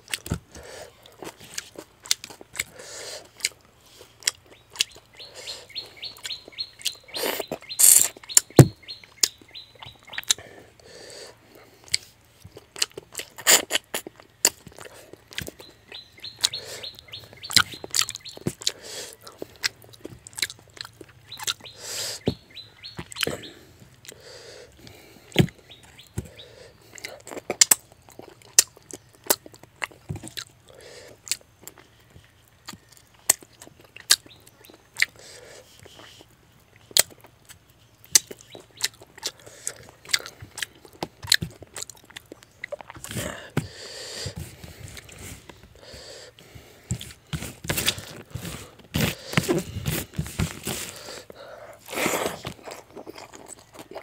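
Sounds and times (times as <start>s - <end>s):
wet chewing and lip smacks: 0.0s - 10.5s, 11.8s - 21.8s, 26.8s - 43.2s, 51.1s - 54.0s
bird chirping: 3.9s - 10.7s, 14.2s - 30.0s, 31.6s - 41.0s.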